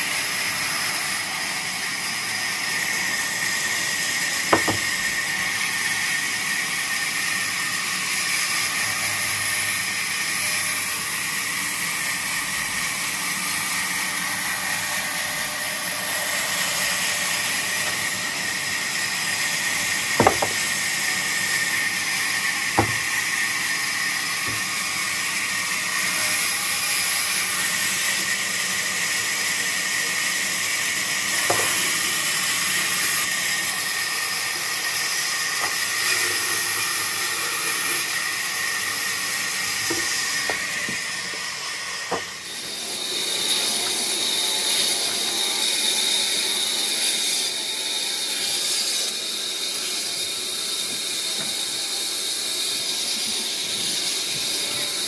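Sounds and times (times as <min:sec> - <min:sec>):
band saw cutting wood: 0:00.0 - 0:55.0
sharp knocks: 0:04.5 - 0:05.0, 0:20.2 - 0:20.7, 0:22.8 - 0:23.1.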